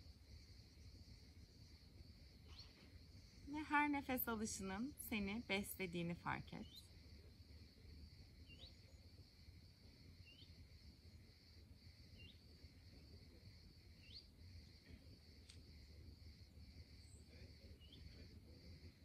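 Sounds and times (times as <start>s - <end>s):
bird chirping: 2.4s - 6.9s, 8.4s - 9.1s, 10.2s - 10.6s, 12.1s - 12.5s, 13.9s - 14.7s, 17.0s - 18.3s.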